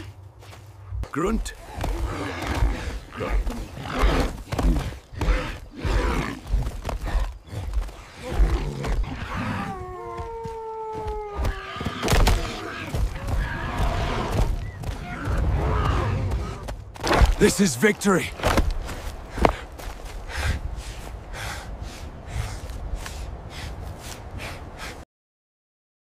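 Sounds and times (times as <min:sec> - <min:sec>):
long falling cry: 0:09.6 - 0:11.8.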